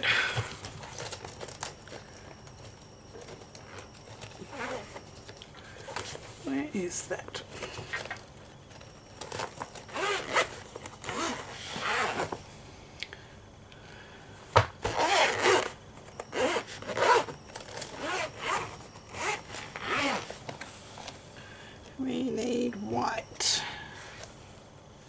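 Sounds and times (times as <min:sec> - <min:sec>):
zipper rasping open: 0:03.6 - 0:05.0, 0:09.9 - 0:12.4, 0:14.9 - 0:15.7, 0:16.3 - 0:17.3, 0:17.9 - 0:20.3.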